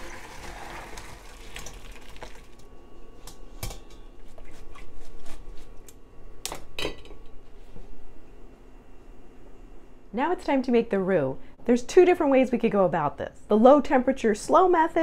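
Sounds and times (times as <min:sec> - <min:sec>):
liquid pouring and splashing: 0:00.0 - 0:02.6.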